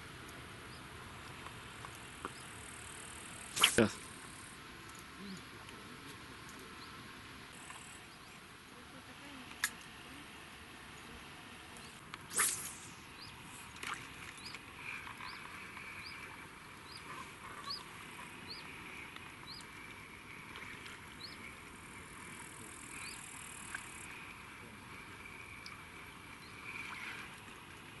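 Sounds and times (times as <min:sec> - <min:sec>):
fishing rod swish: 0:03.5 - 0:03.9, 0:12.3 - 0:13.0.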